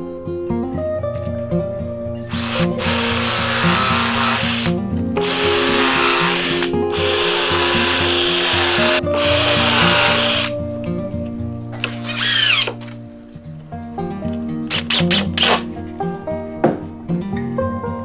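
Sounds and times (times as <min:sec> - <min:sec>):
power drill boring into plywood: 0:02.3 - 0:10.5, 0:11.8 - 0:12.8.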